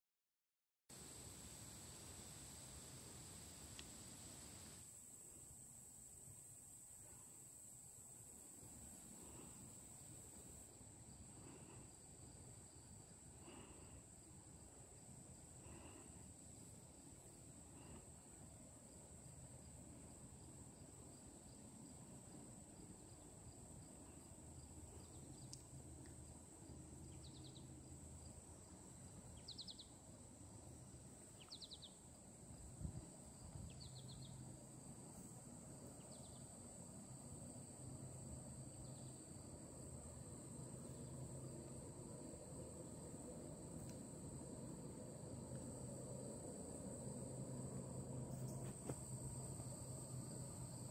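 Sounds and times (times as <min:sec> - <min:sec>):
high insect drone: 0:01.0 - 0:50.9
fast insect trill: 0:27.0 - 0:50.9.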